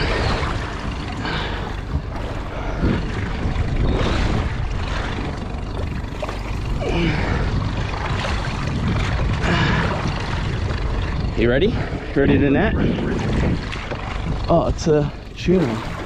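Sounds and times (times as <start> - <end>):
sea noise: 0.0 - 16.0
steady low rumble: 0.0 - 16.0
wind buffeting microphone: 0.0 - 16.0.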